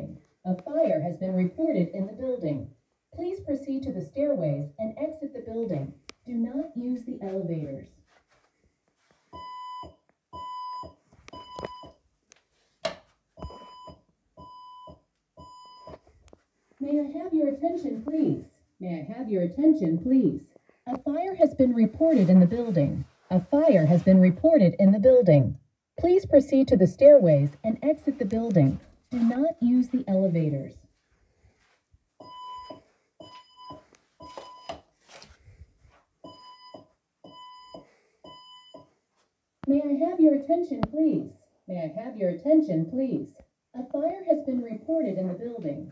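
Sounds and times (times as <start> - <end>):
evacuation alarm beeps: 9.4 - 12.0, 13.4 - 16.0, 32.2 - 34.8, 36.2 - 38.9.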